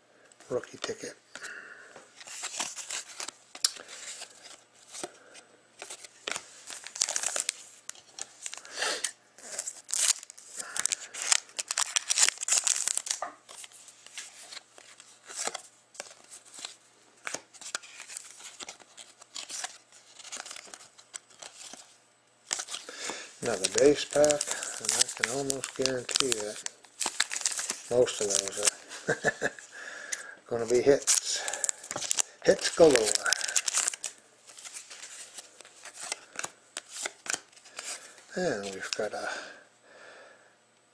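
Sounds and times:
cards being handled: 0:02.2 - 0:21.9, 0:22.5 - 0:39.3
foil wrapper tearing and crinkling: 0:05.9 - 0:14.6, 0:22.5 - 0:29.5, 0:30.6 - 0:39.2.

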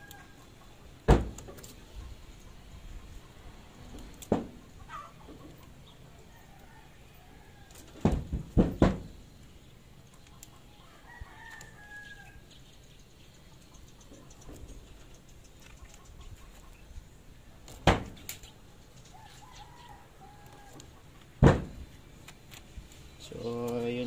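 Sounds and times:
rooster crowing: 0:00.0 - 0:00.5, 0:06.2 - 0:07.9, 0:10.8 - 0:12.4, 0:19.1 - 0:21.0.

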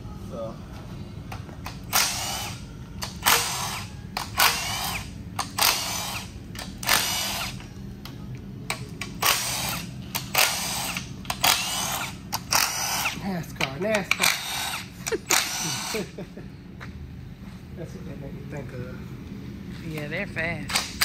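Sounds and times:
impact wrench whining: 0:01.6 - 0:07.7, 0:09.0 - 0:13.2, 0:14.0 - 0:16.1.

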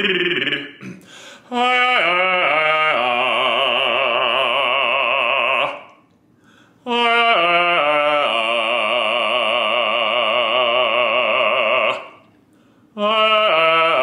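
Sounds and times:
man singing operatic warm-up: 0:00.0 - 0:06.1, 0:06.8 - 0:12.3, 0:12.9 - 0:14.0.

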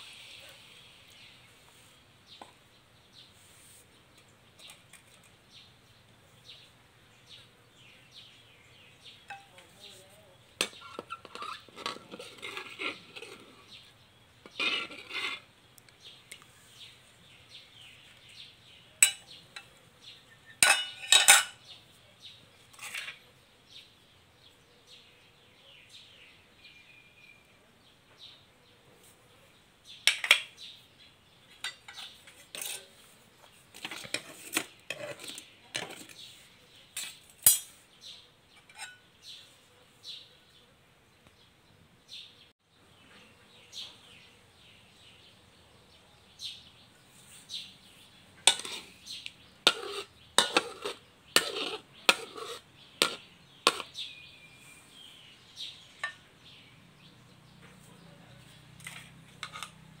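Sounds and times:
utensil clinking against pans: 0:19.0 - 0:19.7, 0:20.6 - 0:21.6, 0:31.6 - 0:32.9, 0:38.6 - 0:39.0, 0:48.5 - 0:48.9, 0:49.7 - 0:53.9.

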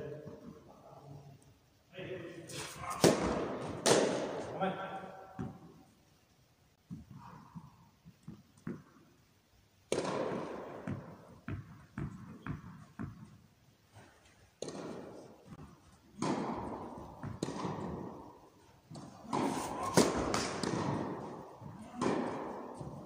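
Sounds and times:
tennis balls bouncing: 0:02.9 - 0:04.6, 0:05.4 - 0:05.8, 0:06.8 - 0:09.2, 0:09.9 - 0:23.0.

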